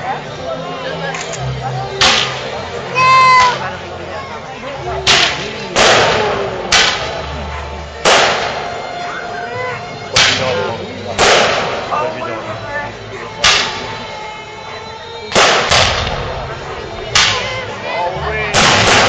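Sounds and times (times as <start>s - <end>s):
fireworks bursting with bangs: 5.0s - 7.2s, 8.0s - 8.7s, 11.2s - 11.9s, 15.3s - 16.3s, 18.5s - 19.0s.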